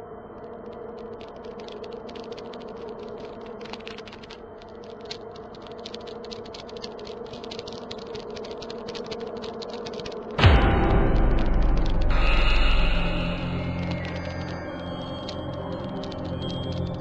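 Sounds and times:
rapid irregular clicking: 0.3s - 17.0s
steady low hum: 7.5s - 17.0s.

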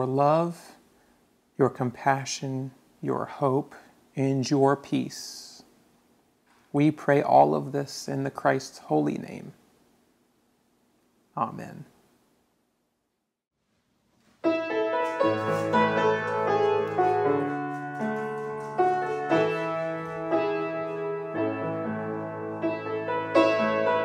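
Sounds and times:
piano playing sustained chords: 14.5s - 24.0s.

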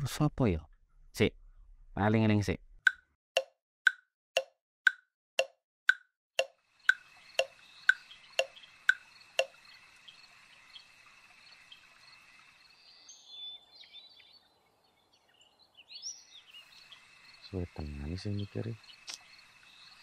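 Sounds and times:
clock ticking: 2.9s - 9.5s
crickets trilling: 6.7s - 13.3s, 15.9s - 20.0s.

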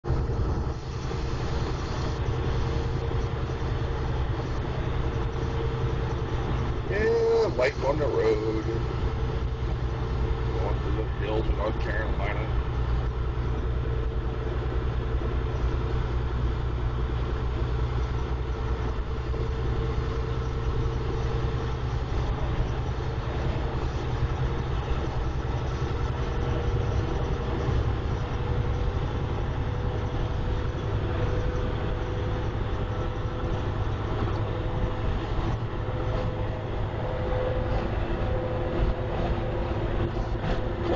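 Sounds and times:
low engine drone: 0.0s - 40.9s
road noise: 0.0s - 40.9s
thin steady whine: 0.0s - 40.9s.

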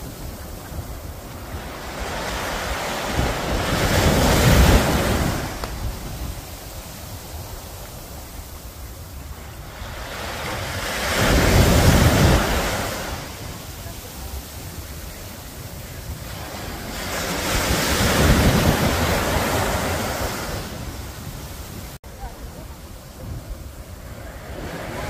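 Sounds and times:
waves washing up a beach: 0.0s - 25.0s.

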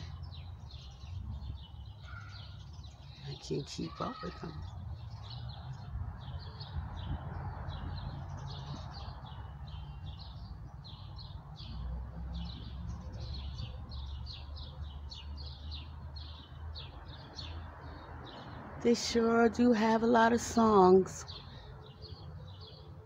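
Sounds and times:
songbirds chirping and singing: 0.0s - 23.0s.

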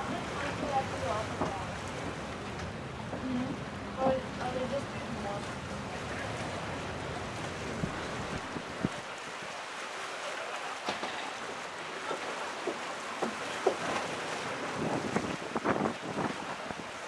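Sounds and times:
water noise: 0.0s - 17.0s
wind: 0.0s - 17.0s
short knocks or splashes: 10.8s - 16.6s.

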